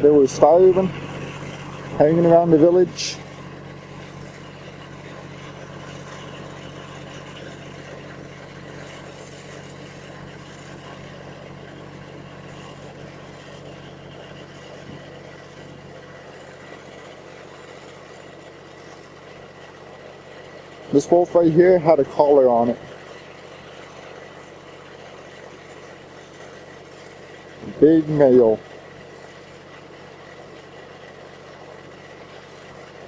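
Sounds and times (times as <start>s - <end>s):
engine idling hum: 0.0s - 33.0s.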